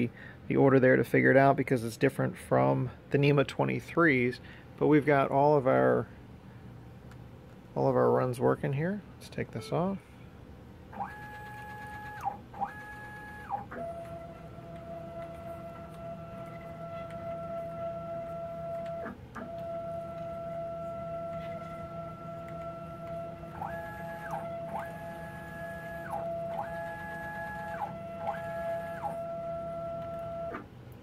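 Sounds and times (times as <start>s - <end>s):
stepper motor whine: 10.9s - 30.7s.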